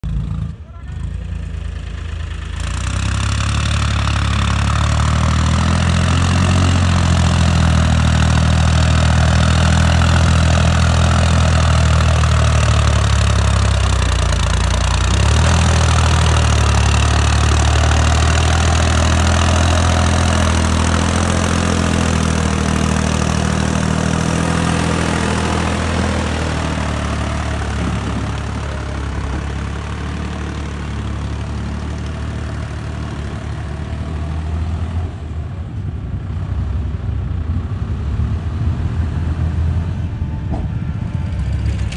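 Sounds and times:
tractor diesel engine running: 0.0s - 41.9s.

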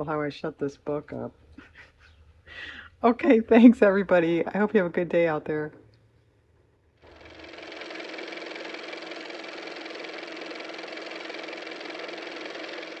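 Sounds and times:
old car engine running: 7.0s - 13.0s.

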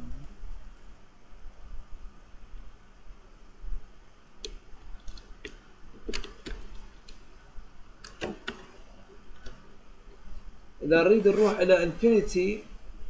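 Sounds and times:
keyboard keys clicking: 4.4s - 7.2s.

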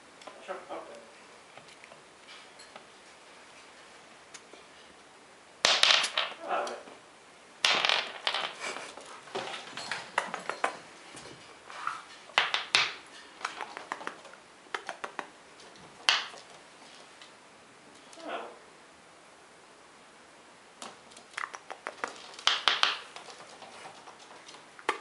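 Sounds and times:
squirrel claws scratching floor: 7.7s - 18.2s, 20.8s - 25.0s.

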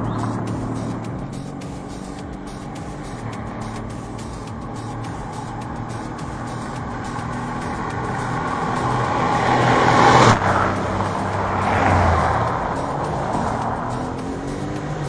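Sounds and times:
cars racing past: 0.0s - 15.0s.

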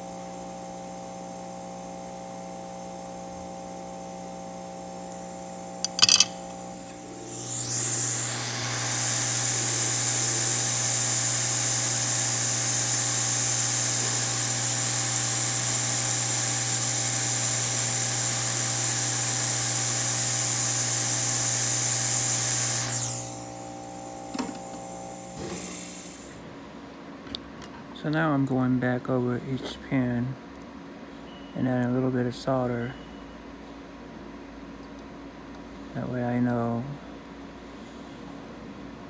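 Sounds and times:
hot-air station hissing: 7.0s - 26.5s.

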